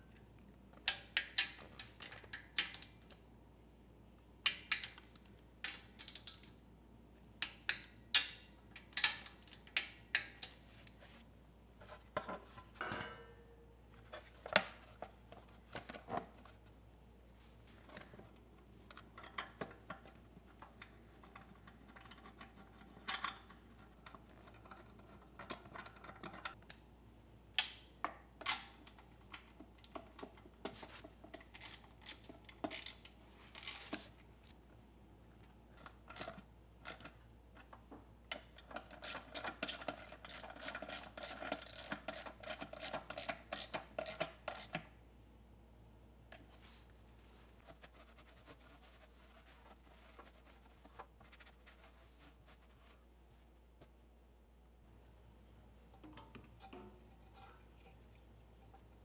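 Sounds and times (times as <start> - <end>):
ratchet turning bolts: 31.6 - 33.8, 39.0 - 44.8.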